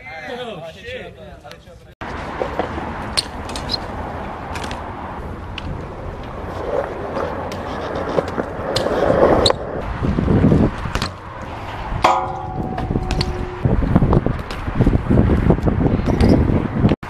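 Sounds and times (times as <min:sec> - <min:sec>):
bike tyres rolling on concrete: 0:02.0 - 0:17.0
bike landing knocks and clacks: 0:10.4 - 0:11.3, 0:12.0 - 0:17.0.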